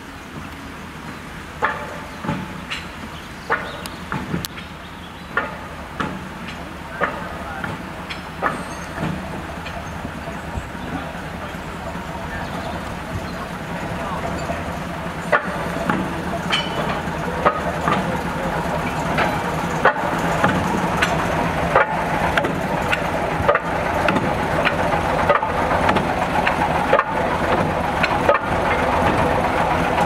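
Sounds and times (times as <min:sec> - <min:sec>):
diesel locomotive engine chugging: 0:00.0 - 0:30.0
sharp metallic clanks: 0:05.3 - 0:10.4, 0:11.0 - 0:29.3.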